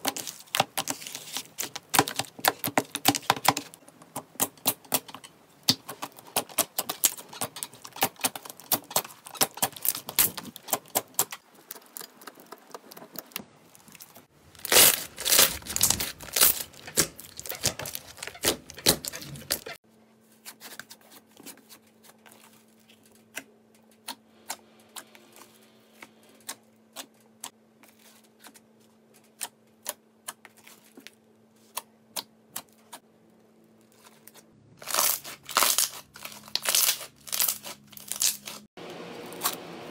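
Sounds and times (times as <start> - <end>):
slime squelching: 0.0 - 19.8.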